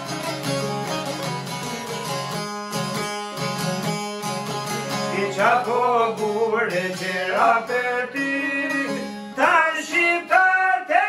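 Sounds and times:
plucked lutes droning: 0.0s - 9.4s
man singing folk song: 4.7s - 11.0s.

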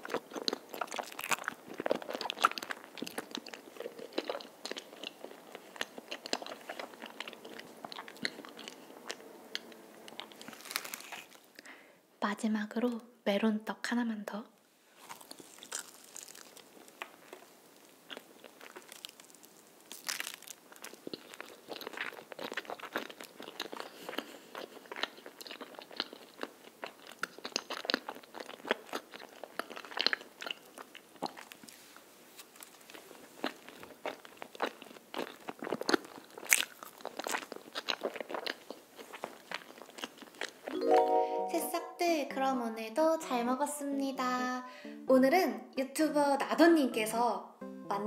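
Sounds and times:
close chewing mouth clicks: 0.0s - 11.4s, 18.1s - 31.6s.

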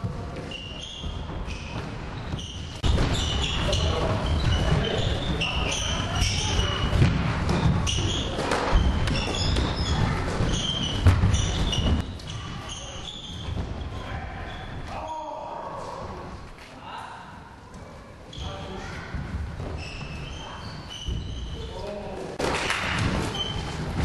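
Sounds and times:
feet pounding wooden floor: 8.7s - 12.1s.

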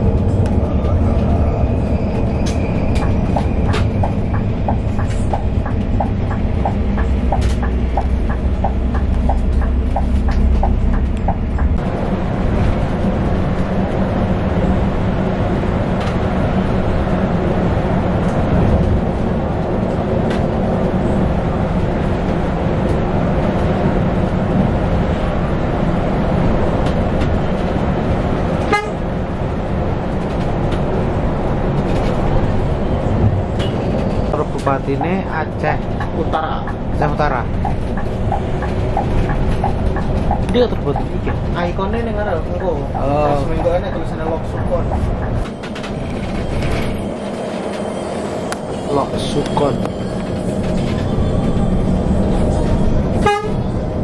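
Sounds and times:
bus engine drone: 0.0s - 54.0s
tyre and road noise: 0.0s - 54.0s
regular ticking: 3.0s - 11.8s.

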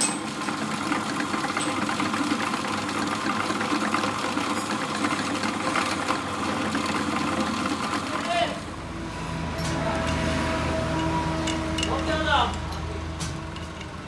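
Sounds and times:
drill press boring into wood: 0.0s - 8.8s.

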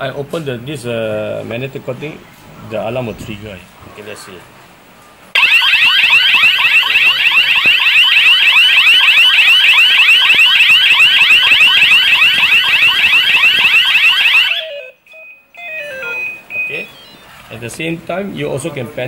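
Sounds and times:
burglar alarm siren wailing: 5.4s - 17.5s.

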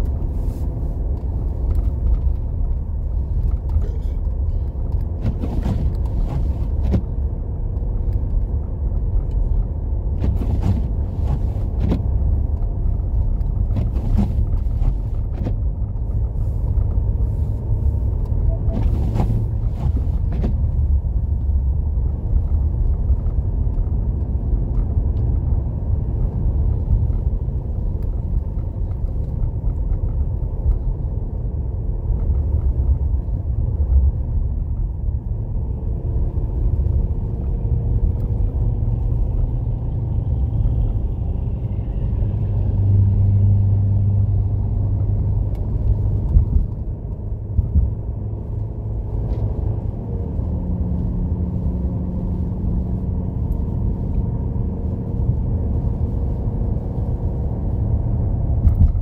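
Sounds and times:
car driving on snowy road: 0.0s - 59.0s
windshield wipers sweeping: 5.2s - 7.2s, 10.1s - 21.0s.

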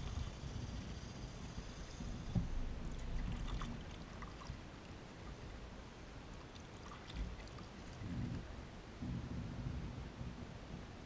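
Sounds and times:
kayak paddle in water: 0.0s - 11.0s
water dripping from paddle: 2.9s - 4.6s.

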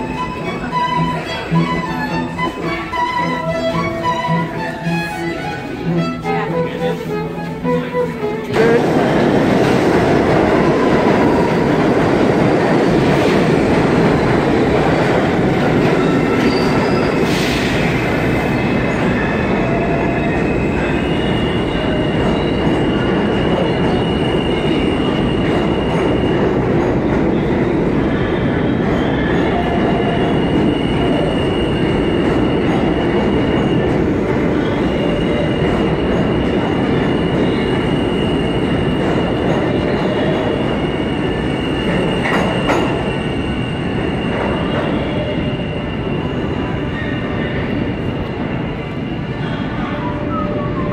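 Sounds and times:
subway train wheels rumbling: 0.0s - 50.9s
high wheel squeal: 16.0s - 26.4s, 34.6s - 50.9s.

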